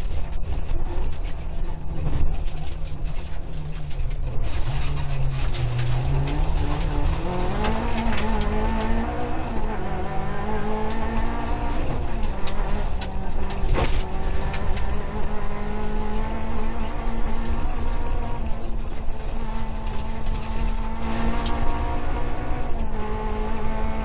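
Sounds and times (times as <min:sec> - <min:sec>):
car knocks and rattles: 0:00.0 - 0:23.3
rally car engine revving: 0:00.0 - 0:24.0.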